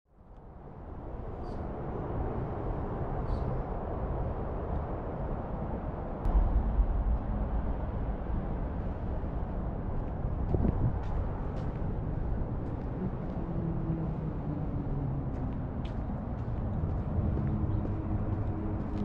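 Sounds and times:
low rumble and hiss: 0:00.4 - 0:13.3.

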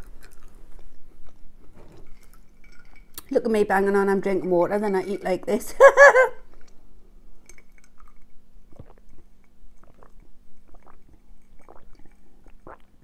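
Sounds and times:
person chewing food: 0:00.0 - 0:03.2, 0:07.5 - 0:13.0
person gulping water: 0:07.5 - 0:13.0.

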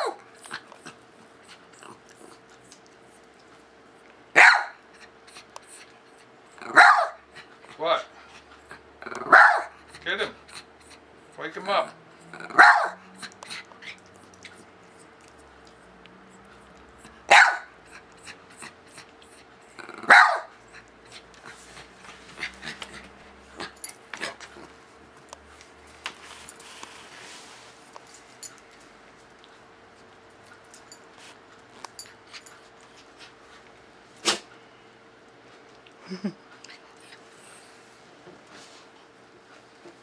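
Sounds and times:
dog barking: 0:04.4 - 0:04.8, 0:06.7 - 0:07.2, 0:09.2 - 0:09.8, 0:12.5 - 0:13.0, 0:17.3 - 0:17.8, 0:20.0 - 0:20.5.

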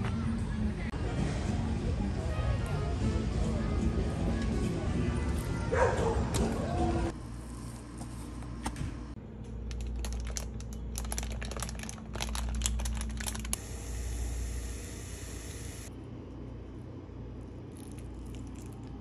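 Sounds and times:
low room hum: 0:00.1 - 0:19.0
plastic packaging crinkling: 0:09.6 - 0:13.6.

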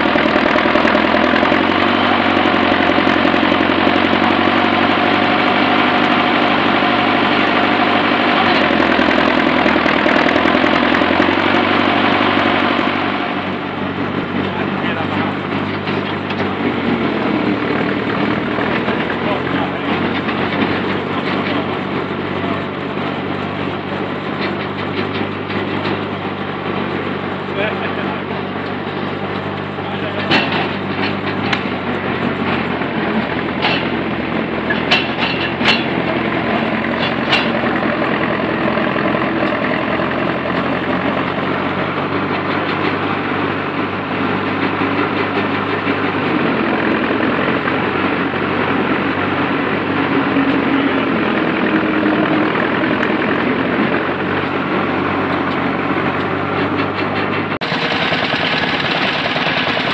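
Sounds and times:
excavator engine running: 0:00.0 - 0:59.9
sharp metallic clanks: 0:30.0 - 0:32.6, 0:33.2 - 0:37.9.

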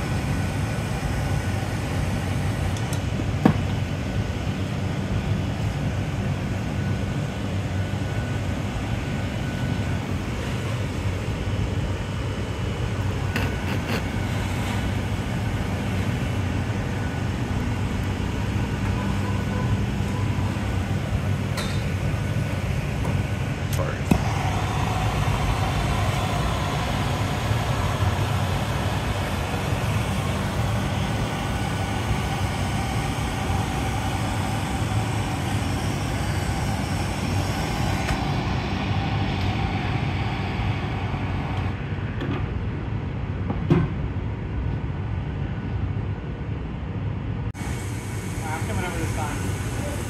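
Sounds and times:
low roar of furnace burner: 0:00.0 - 0:50.0
gas torch hissing: 0:10.0 - 0:41.8, 0:47.6 - 0:50.0.

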